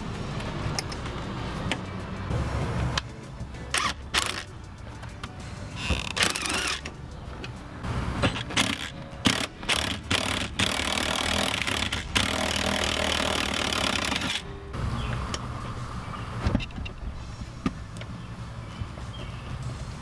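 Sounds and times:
impact wrench hammering: 8.3s - 14.4s.

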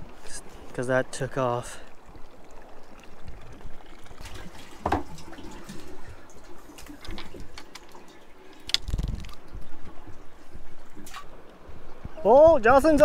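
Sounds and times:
water splashing and dripping: 1.5s - 11.6s.

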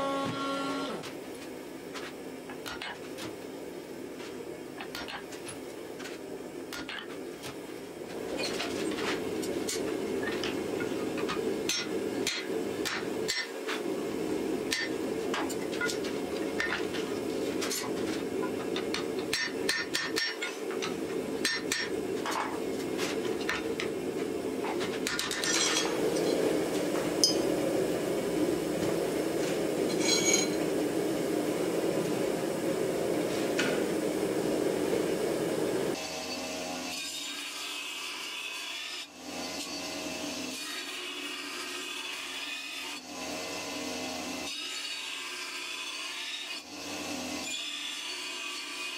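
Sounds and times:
low workshop drone: 0.0s - 48.9s
hammer striking metal on anvil: 11.3s - 13.5s, 14.7s - 16.0s, 18.8s - 22.4s, 27.2s - 27.5s
metallic clink of steel: 29.9s - 30.6s.

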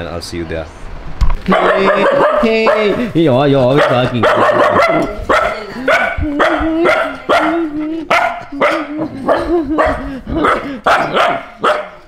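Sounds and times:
puppies barking: 1.5s - 12.0s.

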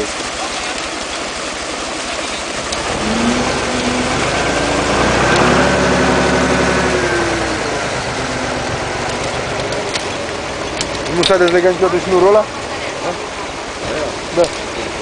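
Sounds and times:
truck engine revving: 2.6s - 13.8s.

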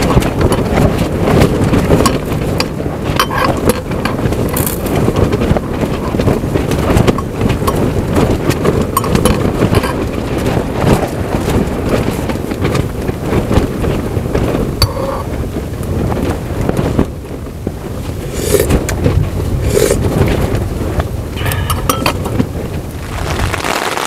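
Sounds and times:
wind buffeting microphone: 0.0s - 24.0s
spoon clinking against glass: 21.4s - 22.2s.

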